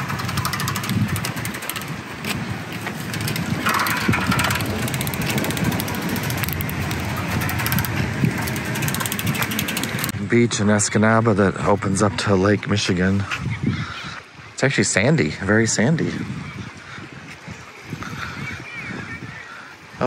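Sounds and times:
steady rushing noise: 0:00.0 - 0:11.9.

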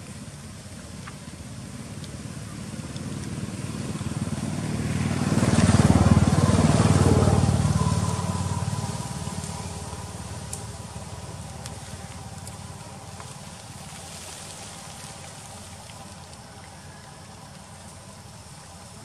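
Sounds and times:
vehicle engine passing by: 0:02.3 - 0:13.2.

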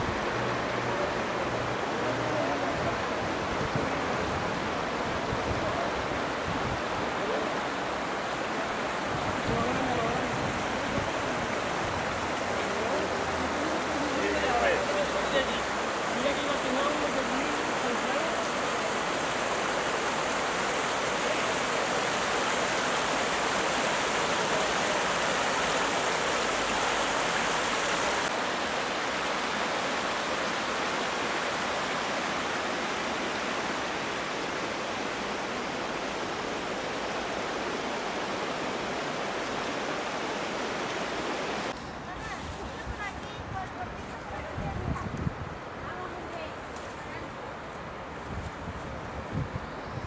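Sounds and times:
floodwater rushing past rocks: 0:00.0 - 0:49.9.

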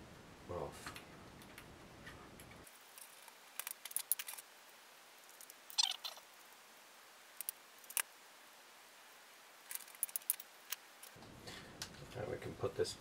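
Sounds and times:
plastic parts clicking and rattling: 0:02.4 - 0:04.4, 0:09.7 - 0:11.2.

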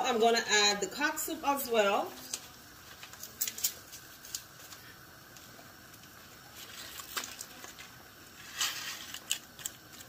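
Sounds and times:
faint steady hiss: 0:00.0 - 0:10.0
packet rustling: 0:06.5 - 0:10.0.

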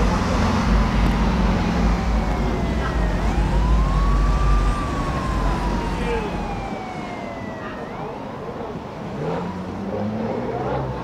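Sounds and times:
steady low rumble: 0:00.0 - 0:06.9
siren wailing: 0:01.6 - 0:08.5.

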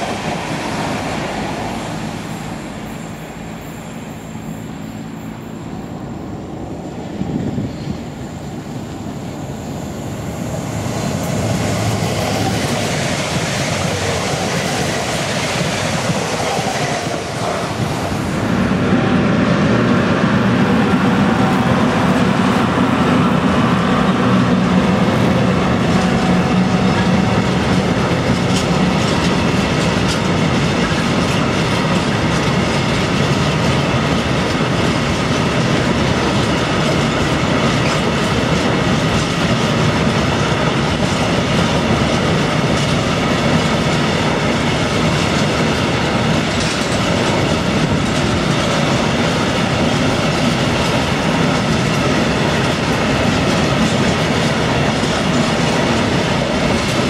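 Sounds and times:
electric locomotive passing: 0:00.0 - 0:57.0
freight train rolling past: 0:00.0 - 0:57.0.

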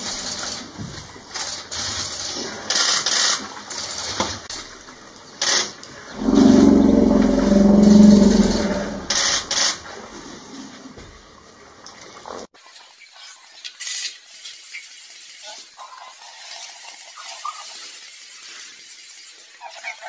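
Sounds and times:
elephant rumble: 0:06.2 - 0:09.6.

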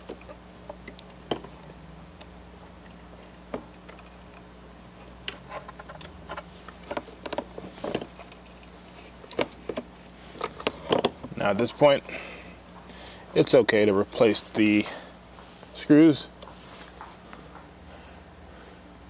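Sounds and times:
hands handling laptop parts: 0:02.2 - 0:11.2.

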